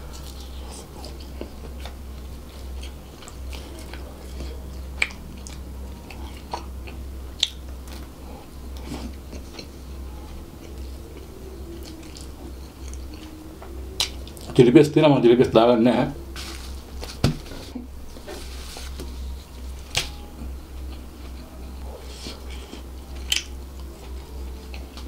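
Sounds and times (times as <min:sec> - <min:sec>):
steady low hum: 0:00.0 - 0:25.0
chewing food: 0:00.1 - 0:14.6, 0:20.4 - 0:25.0.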